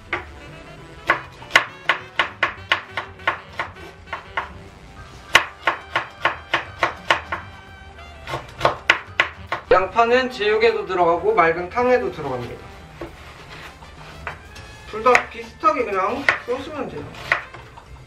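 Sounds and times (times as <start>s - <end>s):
background music: 0.0s - 18.0s
knife chopping on wooden board: 0.1s - 0.4s, 1.0s - 4.6s, 5.3s - 7.5s, 8.2s - 9.8s, 14.1s - 17.8s.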